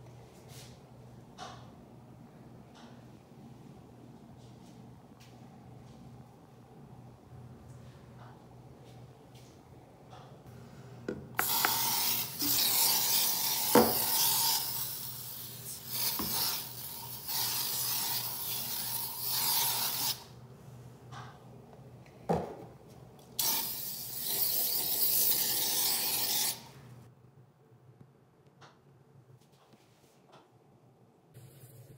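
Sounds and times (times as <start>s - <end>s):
aerosol can spraying: 11.4s - 18.6s.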